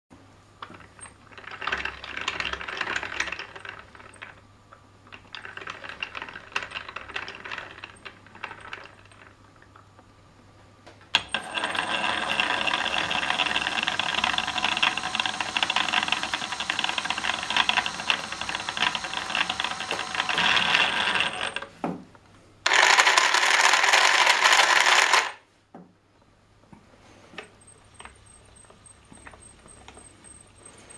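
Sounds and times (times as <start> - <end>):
plastic gears clattering: 11.2 - 21.7, 22.7 - 25.4
electric motor whirring: 11.3 - 21.6.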